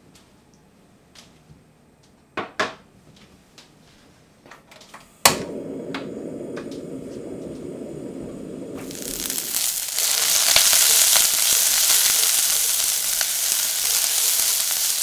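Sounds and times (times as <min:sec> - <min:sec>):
gas burner lighting pop: 0:05.2 - 0:15.0
gas burner rushing: 0:05.2 - 0:15.0.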